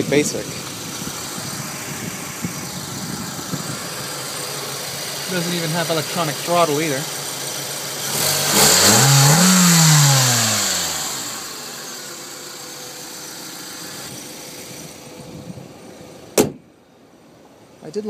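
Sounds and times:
car engine idling and revving: 0:00.0 - 0:17.8
car hood slamming shut: 0:16.4 - 0:16.7.

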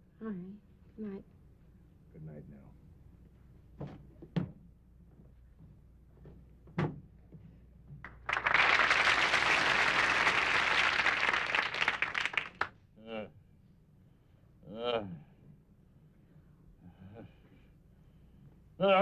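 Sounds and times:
studio audience applauding: 0:08.1 - 0:12.7.

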